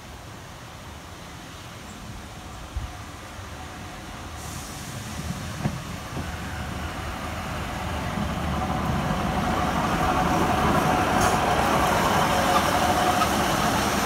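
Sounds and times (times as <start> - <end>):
diesel railcar engine: 0.0 - 14.0
train wheels on rails: 1.6 - 14.0.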